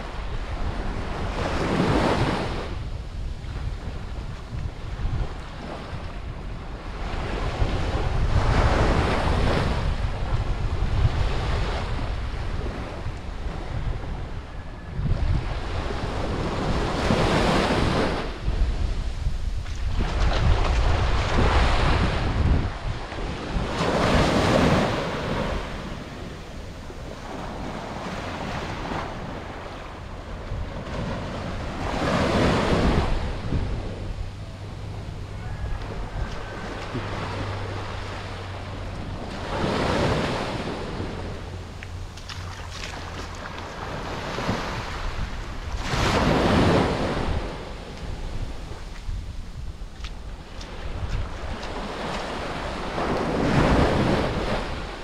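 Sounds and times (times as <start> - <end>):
wind buffeting microphone: 0.0 - 55.0
small waves washing on sand: 15.2 - 55.0.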